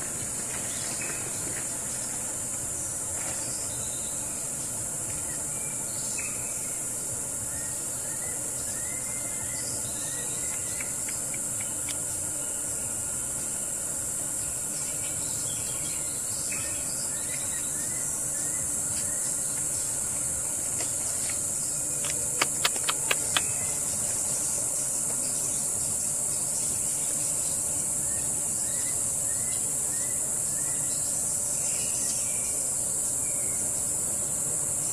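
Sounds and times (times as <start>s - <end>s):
high-pitched insect chorus: 0.0s - 34.9s
sharp clicks: 22.0s - 23.5s.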